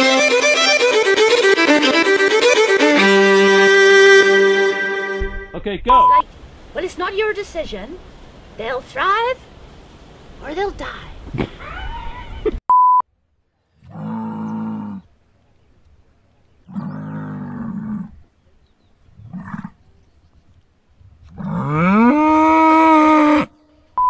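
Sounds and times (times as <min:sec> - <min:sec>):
short electronic beep: 0:05.1 - 0:06.2
bull bellowing: 0:13.8 - 0:15.1, 0:19.2 - 0:19.8, 0:21.3 - 0:23.5.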